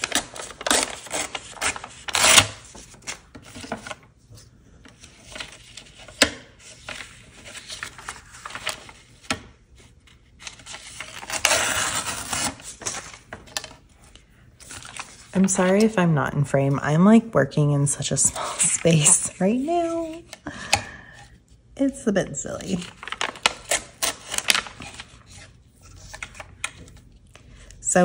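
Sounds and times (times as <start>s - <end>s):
paper ripping: 0.0s - 4.0s, 10.4s - 13.3s, 22.7s - 26.8s.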